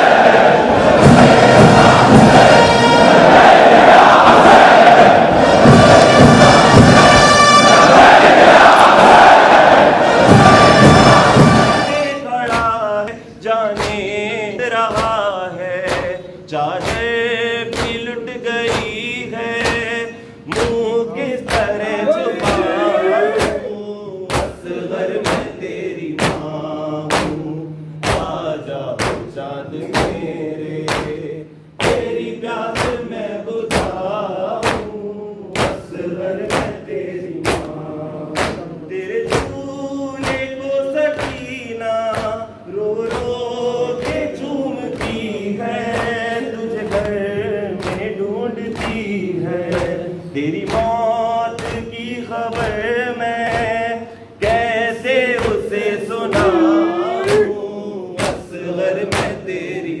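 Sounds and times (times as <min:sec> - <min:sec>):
men singing a lament in unison: 0:00.0 - 0:07.1, 0:07.7 - 1:00.0
palms slapping chests: 0:12.4 - 0:13.0, 0:13.7 - 0:14.2, 0:14.8 - 0:23.7, 0:26.2 - 0:30.2, 0:30.8 - 0:33.1, 0:35.6 - 0:36.8, 0:37.4 - 0:42.4, 0:43.0 - 0:50.0, 0:54.4 - 0:57.6.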